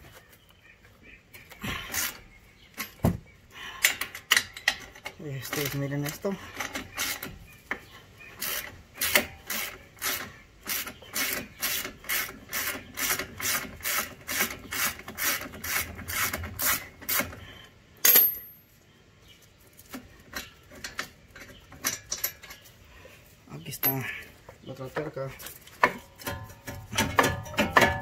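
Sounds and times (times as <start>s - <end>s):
sharp metallic clink: 18.0s - 18.7s.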